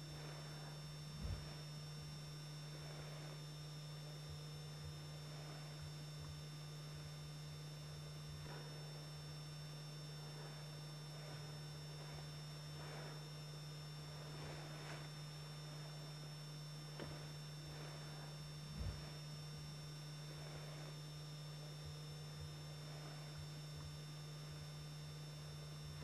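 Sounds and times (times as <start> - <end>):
low electrical hum: 0.0 - 26.0
thin high whine: 0.0 - 26.0
faint hiss: 7.8 - 21.1.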